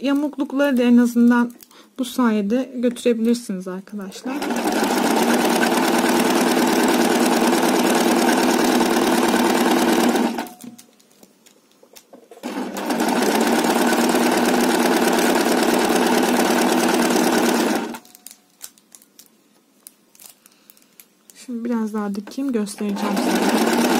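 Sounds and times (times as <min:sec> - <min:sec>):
sewing machine running: 0:04.2 - 0:10.6, 0:12.4 - 0:18.0, 0:22.9 - 0:23.9.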